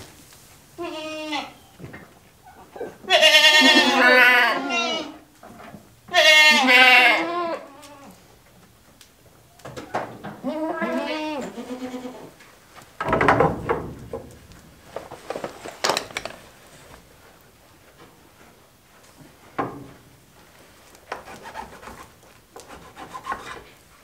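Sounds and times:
tools rubbing and knocking on wood: 21.0 - 23.8.

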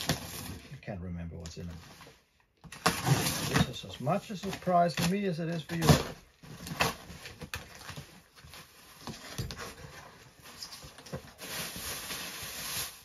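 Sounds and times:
rustling scrape of packing: 6.5 - 13.0.

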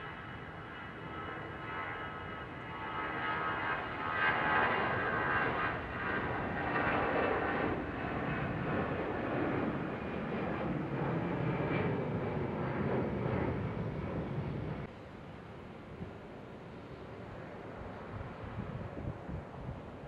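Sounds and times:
jet engines at takeoff: 0.0 - 20.0.

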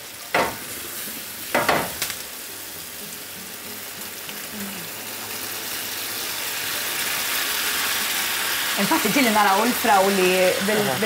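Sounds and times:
strawberries sizzling in a pan: 0.0 - 11.0.

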